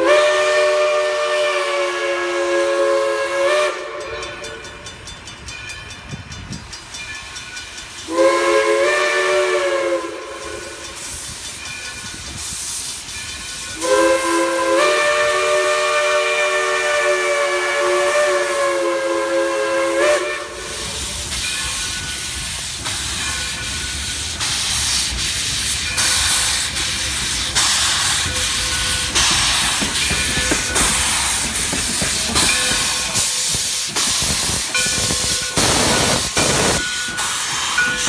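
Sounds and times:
steam whistle blowing: 0.0 - 4.6, 8.1 - 11.2, 13.8 - 21.2
steam train passing: 0.0 - 38.0.

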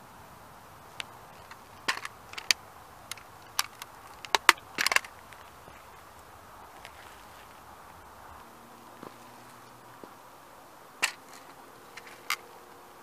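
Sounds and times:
toy car cracking under a shoe: 1.0 - 5.6, 11.0 - 12.5.

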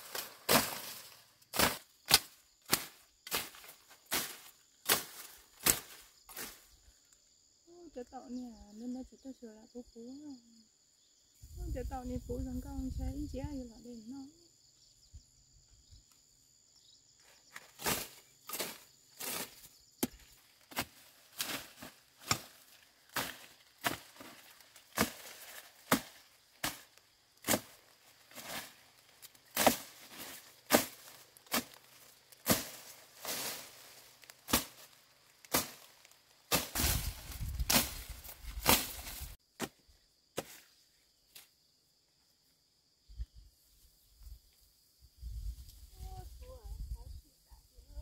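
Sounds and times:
rustling leaves: 0.0 - 7.2, 17.2 - 39.4
plant stems snapping: 29.2 - 39.2.

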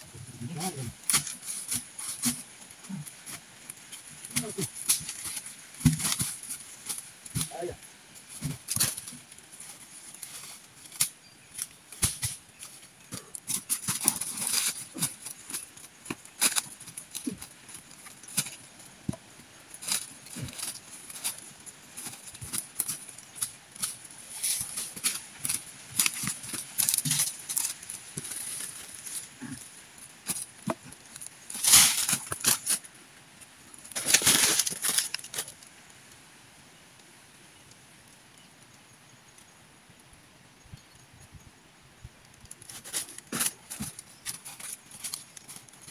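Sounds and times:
log knocking and scraping: 0.0 - 32.8
footsteps crunching through dry leaves: 33.9 - 35.5.

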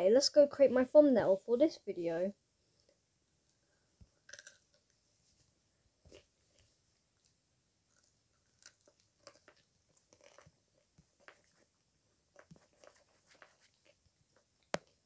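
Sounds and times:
person chewing crunchy food: 4.2 - 4.8, 6.1 - 7.3, 7.9 - 11.7, 12.3 - 14.0.

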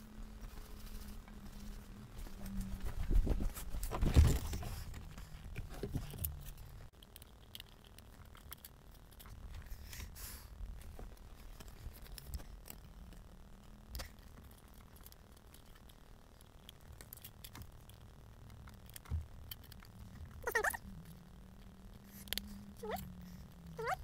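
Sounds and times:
plastic parts rustling and knocking: 1.0 - 10.2.

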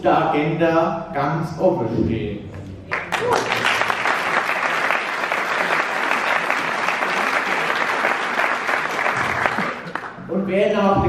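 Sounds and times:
audience applause: 2.9 - 10.2.

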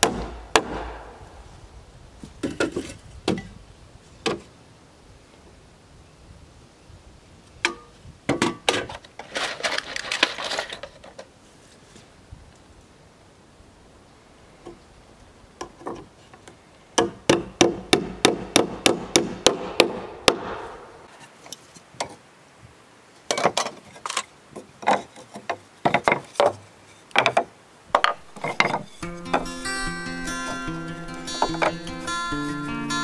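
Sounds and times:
hammer driving nails into wood: 0.0 - 1.1, 17.0 - 20.8.

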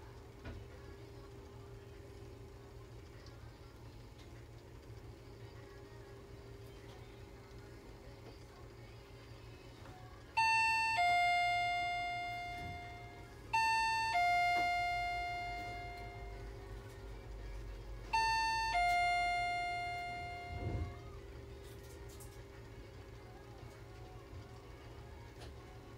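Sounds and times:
steady hum: 0.0 - 25.9
electronic two-tone chime: 10.4 - 16.5, 18.1 - 21.1.

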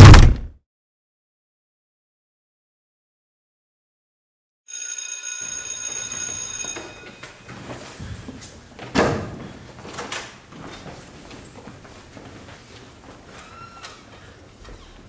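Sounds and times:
school bell ringing: 4.7 - 7.8.

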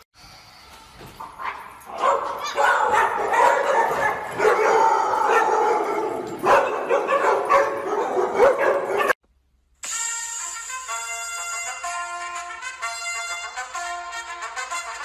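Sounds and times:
dogs barking and howling: 1.4 - 9.2.

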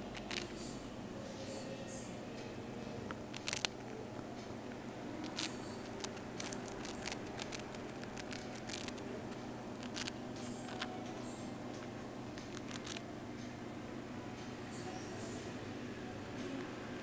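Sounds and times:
hamster gnawing biscuit: 0.0 - 0.7, 3.1 - 4.3, 5.1 - 13.1
steady low hum: 0.0 - 17.0.

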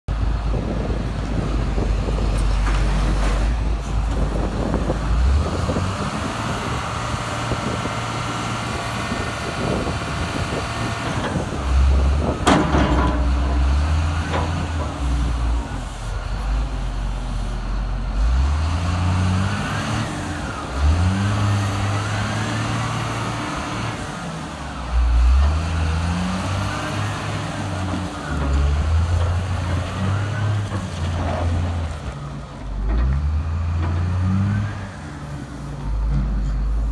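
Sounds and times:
diesel engine revving: 0.2 - 36.9.

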